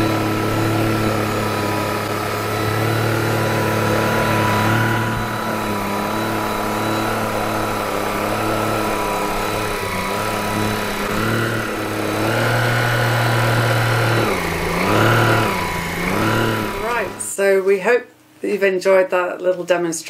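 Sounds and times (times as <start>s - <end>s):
vacuum cleaner motor: 0.0s - 17.5s.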